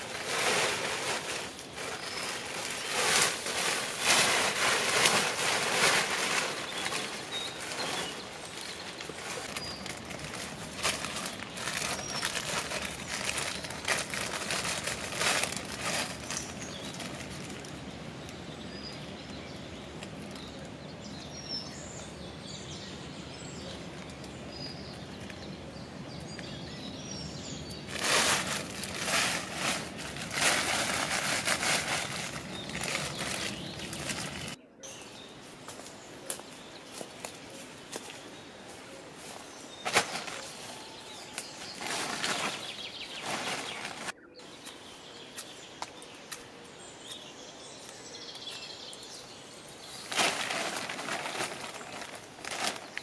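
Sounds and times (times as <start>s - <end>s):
plastic tarpaulin rustling: 0.0s - 17.9s, 27.9s - 34.6s, 39.8s - 44.2s, 49.9s - 53.0s
small birds chirping: 0.0s - 53.0s.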